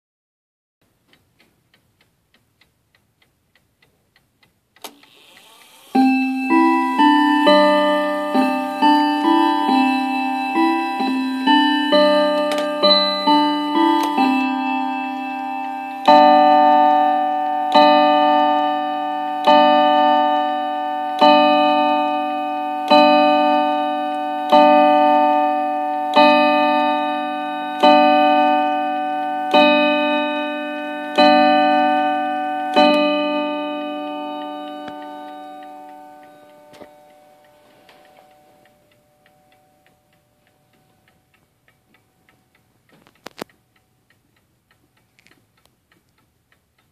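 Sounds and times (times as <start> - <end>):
clock ticking: 0.8 - 46.9
clock chime tune: 5.8 - 41.3
clock striking on chime rods: 5.9 - 41.1.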